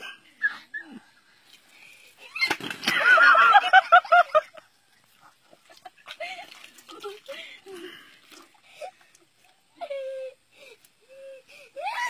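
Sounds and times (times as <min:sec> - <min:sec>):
high-pitched laughter: 0:02.2 - 0:04.6.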